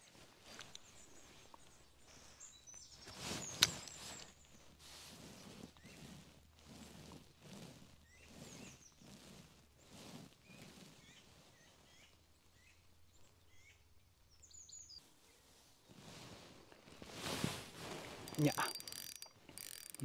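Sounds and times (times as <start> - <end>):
soft rhythmic rustle: 0.0 - 20.0
faint bird chirps: 10.5 - 15.5.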